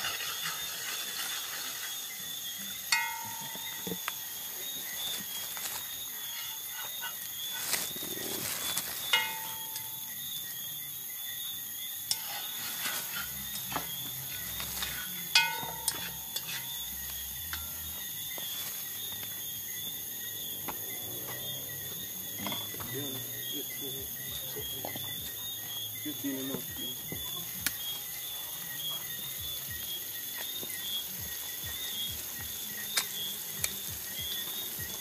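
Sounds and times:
insects chirring: 0.0s - 35.0s
sharp metallic clinks: 2.6s - 5.4s, 9.0s - 10.4s, 12.0s - 19.7s.

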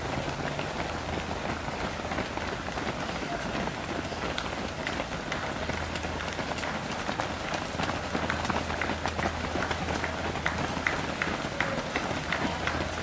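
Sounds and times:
many runners' footsteps on tarmac: 0.0s - 13.0s.

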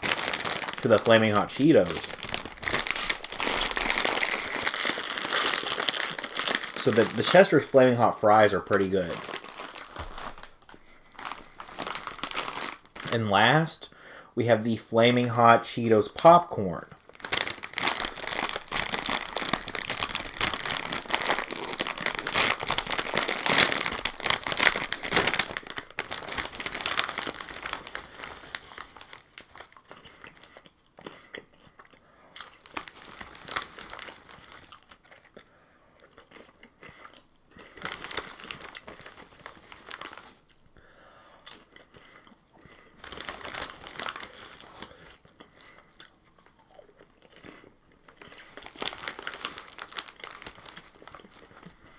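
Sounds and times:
hand rustling in bag: 0.0s - 7.4s, 9.1s - 13.2s, 17.1s - 29.4s
snack bag crinkling: 0.0s - 13.5s, 17.0s - 40.6s, 41.5s - 51.9s
popcorn crunching: 0.0s - 13.6s, 17.0s - 40.6s, 41.4s - 51.9s.

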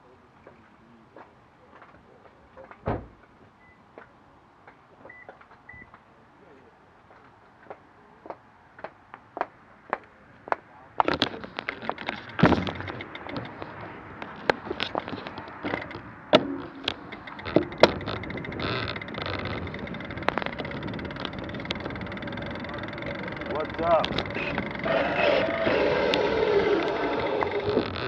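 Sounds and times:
sharp clicks and knocks: 7.1s - 28.0s.

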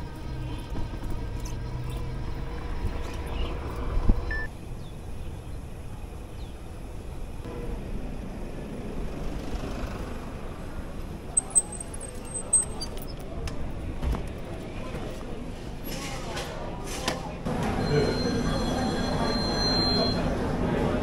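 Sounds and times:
wind: 0.0s - 21.0s
short high beep: 17.8s - 20.3s.

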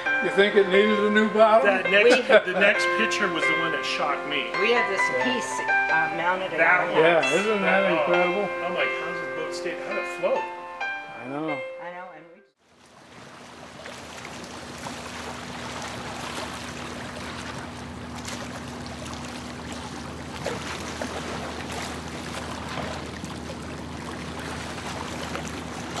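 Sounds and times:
water lapping and trickling: 0.0s - 8.3s, 12.6s - 26.0s
steady low hum: 12.8s - 26.0s.

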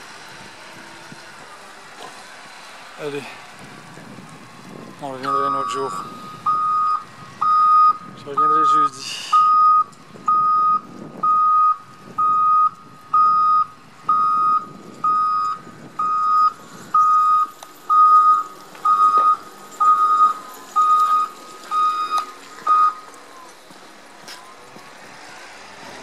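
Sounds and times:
loader engine running: 0.0s - 26.0s
reversing alarm beeping: 5.2s - 23.6s.

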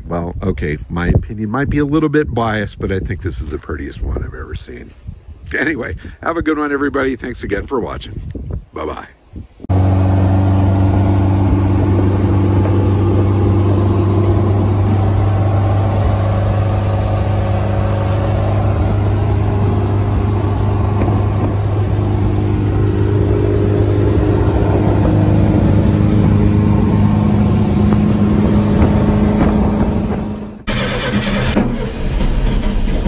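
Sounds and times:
car engine running while driving: 9.7s - 33.0s.

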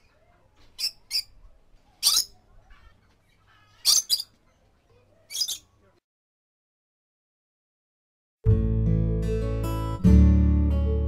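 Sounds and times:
soft bird chatter: 0.0s - 6.0s
parrot shrill squeaks: 0.8s - 1.4s, 2.0s - 4.4s, 5.3s - 5.7s.

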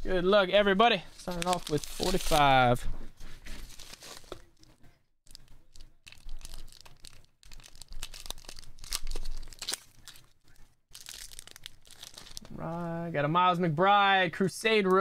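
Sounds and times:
plastic and paper crinkling: 1.1s - 12.8s.

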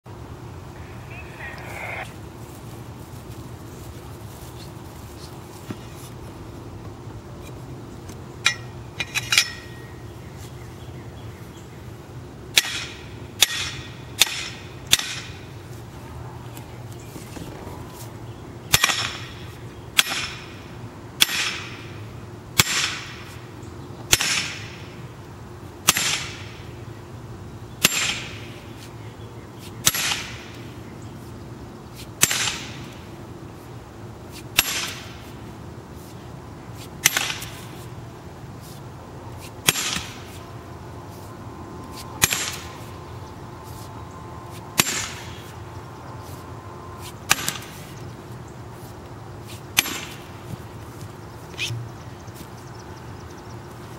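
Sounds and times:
sledgehammer striking metal post: 8.4s - 9.8s, 12.5s - 15.3s, 18.7s - 19.4s, 20.0s - 20.5s, 21.2s - 21.8s, 27.8s - 28.4s, 34.6s - 35.1s, 37.0s - 37.5s, 42.2s - 42.7s, 49.8s - 50.2s.

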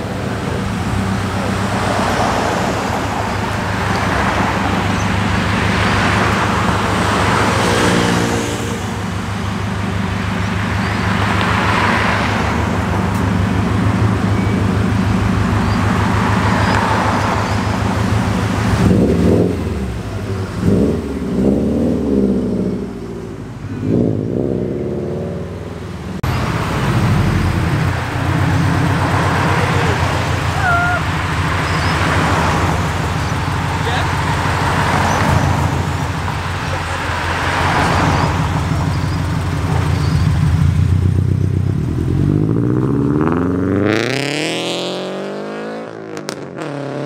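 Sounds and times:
second car engine idling: 0.0s - 1.8s, 12.6s - 23.9s, 25.5s - 42.5s
car engine idling and accelerating: 0.0s - 47.0s.

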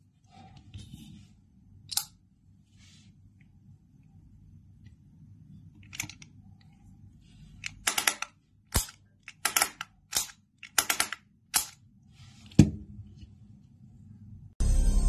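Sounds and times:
fidget toy set on table: 4.9s - 12.6s.

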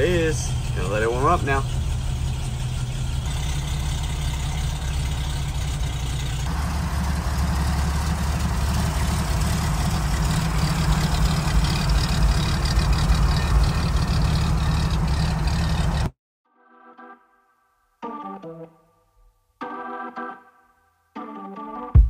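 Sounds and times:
car engine idling: 0.0s - 16.1s.

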